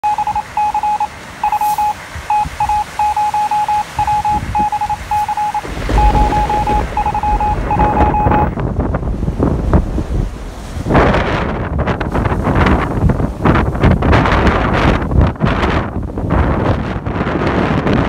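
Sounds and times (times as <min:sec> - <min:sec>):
morse code beeps: 0:00.0 - 0:08.6
wind buffeting microphone: 0:03.9 - 0:18.0.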